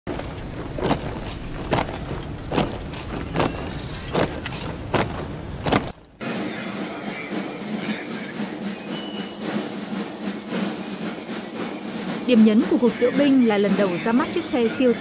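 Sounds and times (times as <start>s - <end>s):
marching boots stomping on stone: 0.1s - 6.0s.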